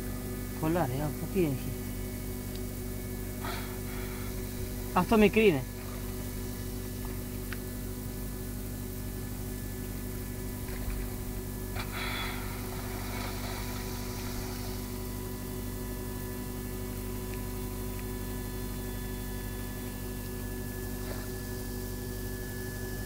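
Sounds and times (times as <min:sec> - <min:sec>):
boat engine humming: 0:00.0 - 0:23.0.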